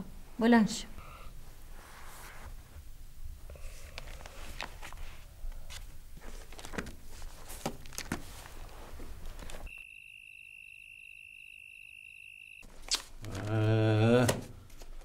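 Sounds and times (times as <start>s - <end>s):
high-pitched mosquito whine: 9.7s - 12.6s.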